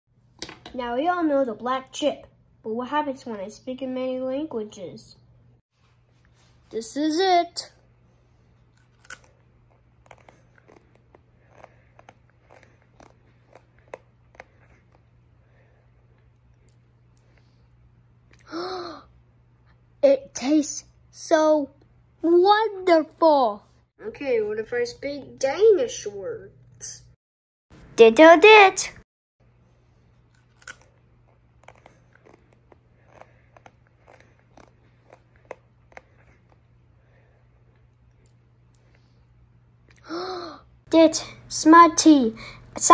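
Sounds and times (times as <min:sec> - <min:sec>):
chip crunching while chewed: 0:08.7 - 0:15.1, 0:30.2 - 0:36.8.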